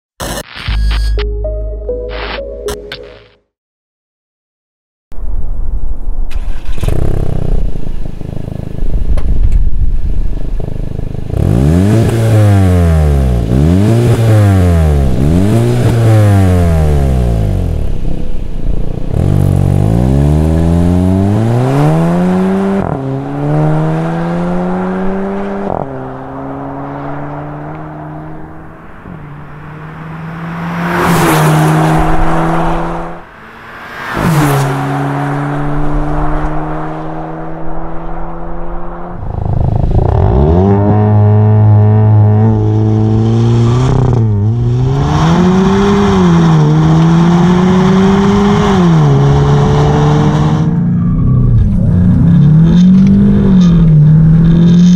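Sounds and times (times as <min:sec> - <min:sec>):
car engine revving and accelerating: 0:10.6 - 0:54.9
car passing close: 0:23.5 - 0:40.0.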